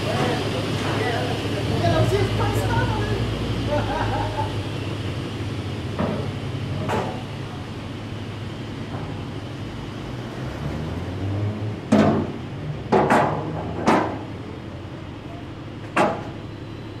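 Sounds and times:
loud sharp knocks: 0:11.9 - 0:14.2, 0:15.9 - 0:16.3.

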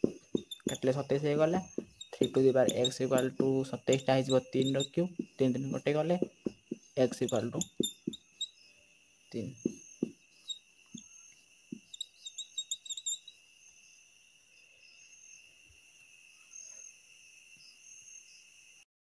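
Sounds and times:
rapid ticks: 0:00.0 - 0:01.0, 0:01.8 - 0:05.0, 0:06.7 - 0:08.5, 0:11.8 - 0:13.3
crickets trilling: 0:00.0 - 0:18.8.

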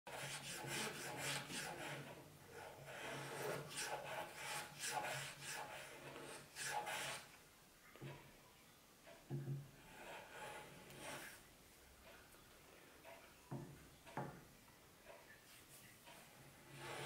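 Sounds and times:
hand plane shaving wood: 0:00.1 - 0:07.3, 0:09.9 - 0:11.4, 0:16.7 - 0:17.0.

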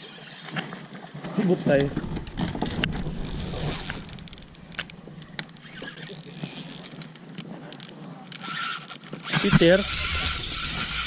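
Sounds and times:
fishing reel gears whirring: 0:02.2 - 0:11.0
fishing reel clicks: 0:03.5 - 0:11.0.

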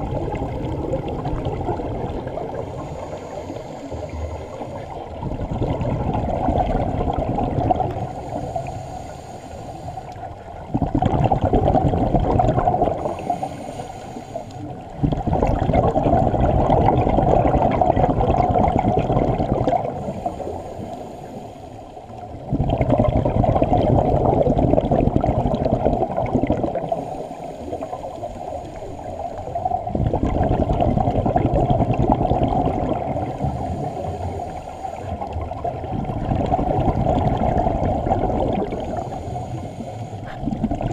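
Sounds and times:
underwater exhaled bubbles rushing: 0:00.0 - 0:09.1, 0:10.1 - 0:40.9.

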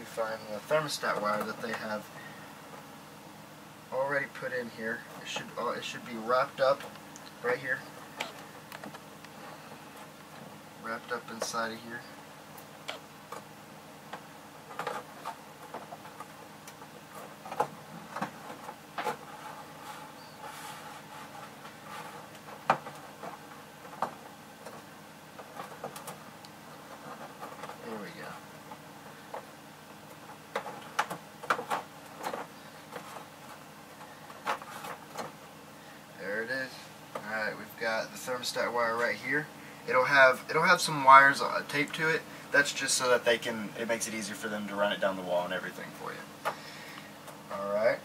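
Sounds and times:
wire scraping against wall: 0:17.1 - 0:24.8.

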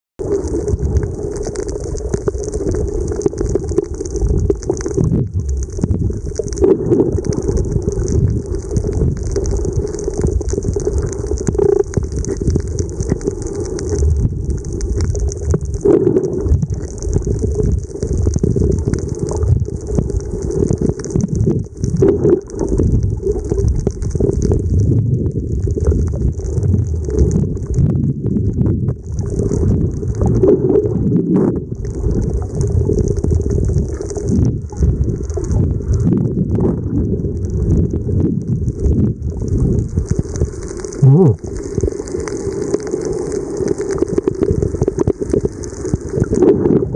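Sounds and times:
muffled underwater churning: 0:00.2 - 0:46.9.

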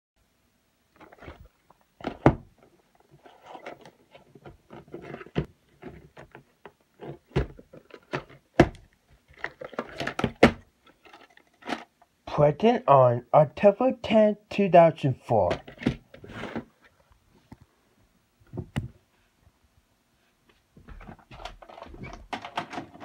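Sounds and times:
light scraping and rattling: 0:10.8 - 0:12.0.

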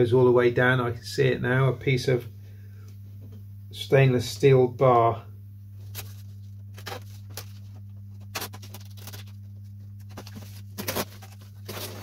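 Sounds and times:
low hum: 0:05.2 - 0:12.0
plastic film crinkling: 0:05.8 - 0:12.0.

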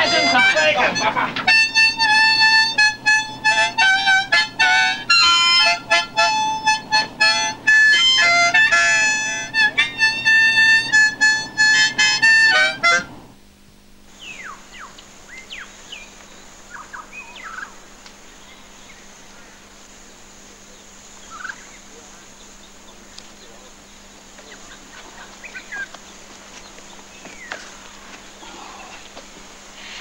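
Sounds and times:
harmonica playing a tune: 0:00.0 - 0:13.3
faint steady hiss: 0:00.0 - 0:30.0
bird chirps: 0:14.1 - 0:19.6, 0:20.7 - 0:28.9.

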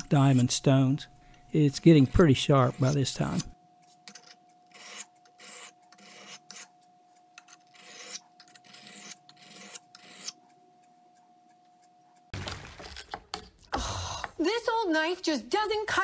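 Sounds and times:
blade scraping on sharpening stone: 0:01.8 - 0:06.8, 0:07.4 - 0:10.4.

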